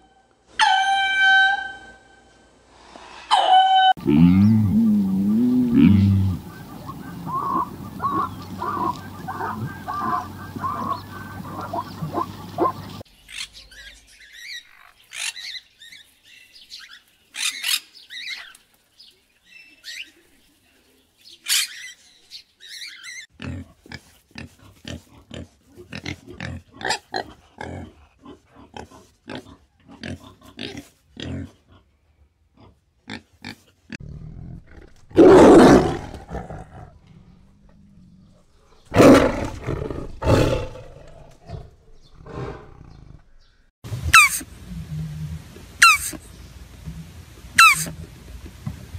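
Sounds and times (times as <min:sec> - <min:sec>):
low animal sounds: 0:03.4 - 0:13.0, 0:34.0 - 0:43.6
tiger roar: 0:04.0 - 0:13.0, 0:34.0 - 0:43.4
macaws squawking: 0:05.1 - 0:13.6, 0:44.2 - 0:44.5, 0:45.8 - 0:46.2, 0:47.6 - 0:48.0.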